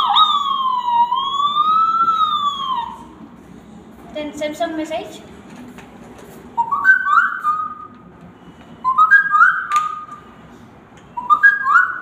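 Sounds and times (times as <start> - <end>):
girl whistling rising notes: 6.6 - 7.9, 8.8 - 10.2, 11.2 - 12.0.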